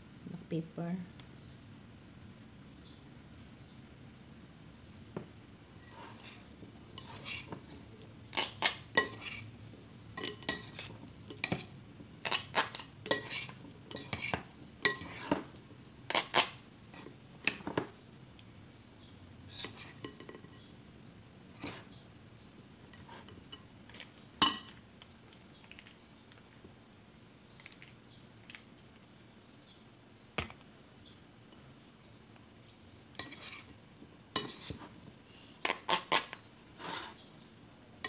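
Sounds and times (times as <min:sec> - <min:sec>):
utensils clinking on glass bowl: 0:10.2 - 0:11.7, 0:12.3 - 0:15.4, 0:24.4 - 0:24.8.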